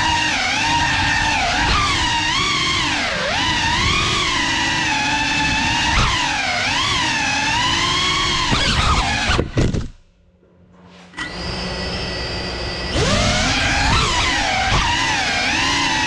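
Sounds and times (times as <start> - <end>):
drone motors whining: 0.0 - 9.9, 11.1 - 16.0.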